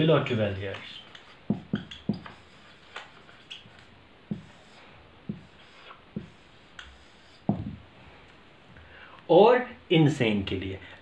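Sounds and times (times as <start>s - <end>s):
marker squeaking on whiteboard: 0.6s - 7.8s.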